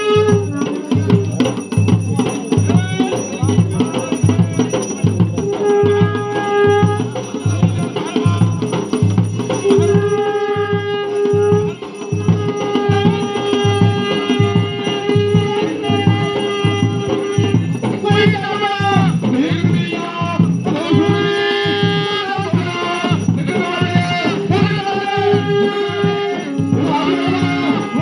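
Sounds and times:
long held notes: 0.0s - 1.4s, 9.5s - 19.0s, 24.4s - 28.0s
low drum beat: 0.0s - 28.0s.

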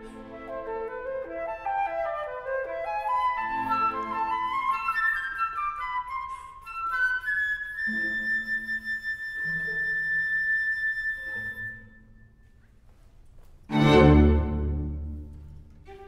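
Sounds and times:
flute holding high note: 6.0s - 12.2s
low string notes: 13.7s - 16.0s.

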